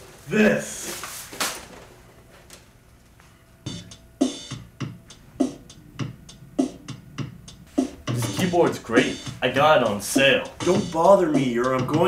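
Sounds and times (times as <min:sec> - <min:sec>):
drum machine beat: 0:03.7 - 0:12.0.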